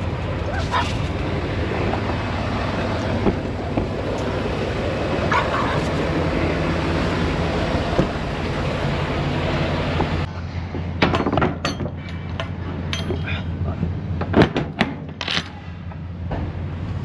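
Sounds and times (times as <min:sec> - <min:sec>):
diesel truck engine idling: 0:00.0 - 0:10.7.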